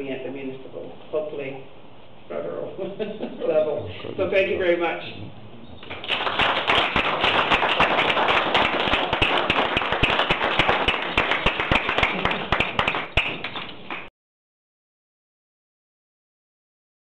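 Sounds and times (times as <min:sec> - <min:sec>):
audience applauding: 0:05.8 - 0:14.1.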